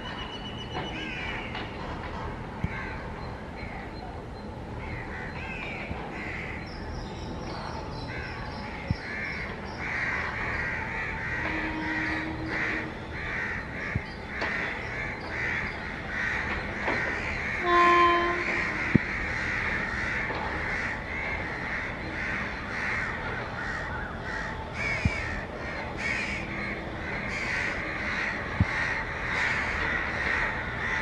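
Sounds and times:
crows cawing: 9.0 - 31.0.

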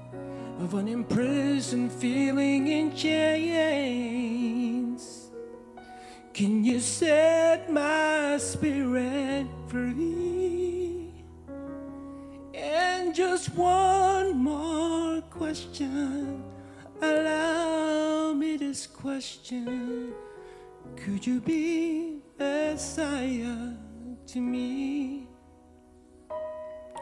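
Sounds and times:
person singing a worship song: 0.0 - 5.4, 6.0 - 11.4, 12.4 - 25.5
soft instrumental accompaniment: 0.0 - 27.0.

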